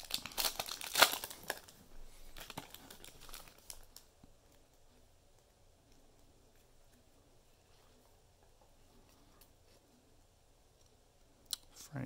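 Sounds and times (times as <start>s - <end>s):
card pack wrapper crinkling: 0.0s - 4.1s.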